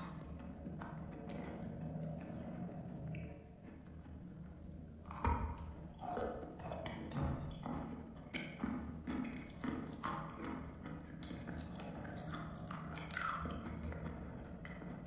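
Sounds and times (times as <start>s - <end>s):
crunchy chewing: 8.3s - 14.8s.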